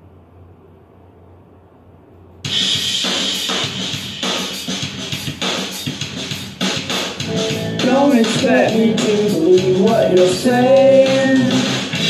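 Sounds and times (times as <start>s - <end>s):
band music with driving drums: 2.5s - 12.0s.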